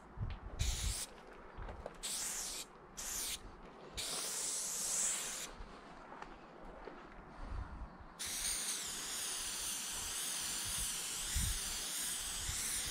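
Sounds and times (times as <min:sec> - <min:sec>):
spray paint can hissing: 0:00.6 - 0:01.1, 0:02.0 - 0:03.4, 0:04.0 - 0:05.6, 0:08.2 - 0:12.9.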